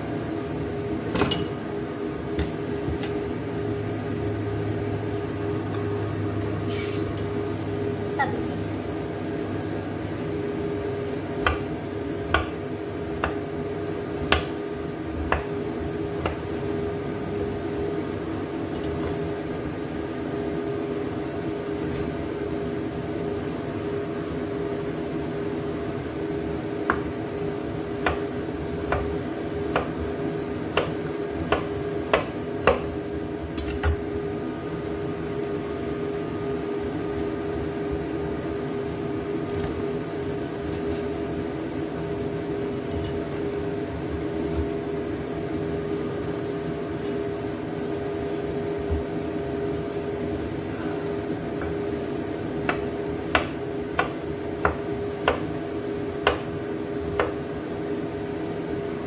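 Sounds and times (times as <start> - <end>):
mechanical hum: 0.0 - 59.0
knife chopping on wooden board: 11.4 - 11.7, 12.3 - 12.6, 13.2 - 13.4, 14.2 - 14.6, 28.0 - 28.3, 28.9 - 29.1, 29.7 - 30.0, 30.7 - 32.9, 52.6 - 55.5, 56.2 - 56.5, 57.1 - 57.4.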